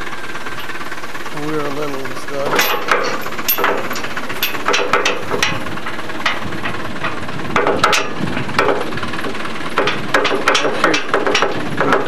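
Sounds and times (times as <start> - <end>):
rattling vehicle body: 0.0 - 12.0
vehicle engine running: 0.0 - 12.0
knocks and clatters over bumps: 2.0 - 12.0.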